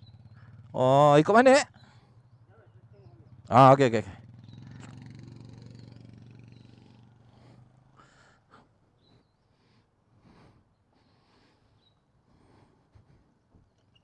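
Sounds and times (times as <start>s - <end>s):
small motorcycle engine running: 0.0s - 8.5s.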